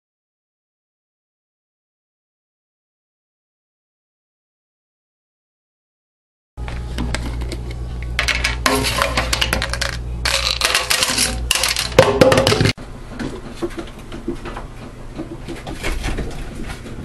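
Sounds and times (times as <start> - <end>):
kitchenware clattering in sink: 8.2 - 12.8.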